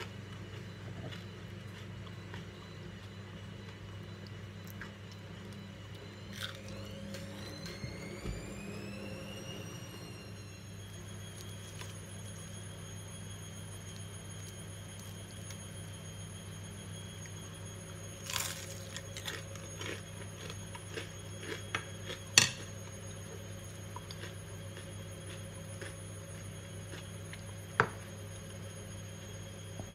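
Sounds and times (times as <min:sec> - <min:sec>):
steady low hum: 0:00.0 - 0:29.9
fried food crunching: 0:06.3 - 0:06.6, 0:18.2 - 0:22.7, 0:23.9 - 0:26.1.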